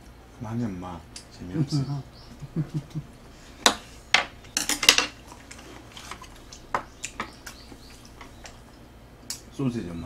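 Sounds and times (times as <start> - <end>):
utensils clinking on metal tray: 4.2 - 6.3.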